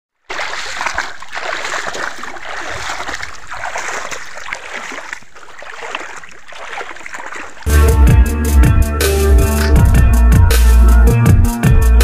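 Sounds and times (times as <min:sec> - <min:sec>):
fish splashing in water: 0:00.2 - 0:07.7.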